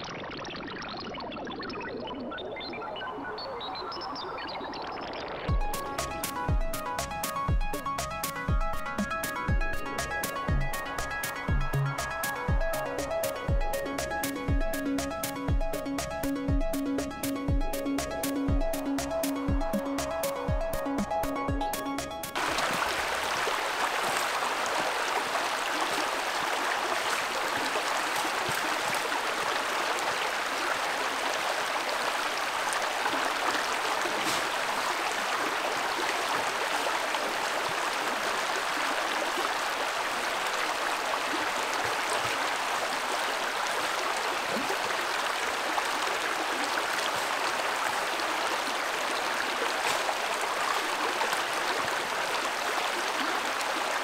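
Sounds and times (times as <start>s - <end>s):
creek water flowing over rocks: 4.7s - 16.1s, 22.2s - 54.0s.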